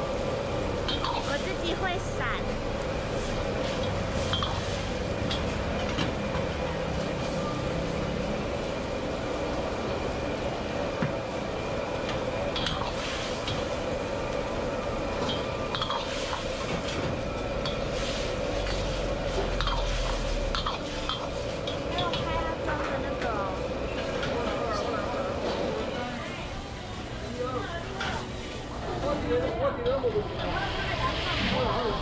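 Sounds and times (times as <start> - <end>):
sauce sizzling and bubbling: 17.5 - 21.8.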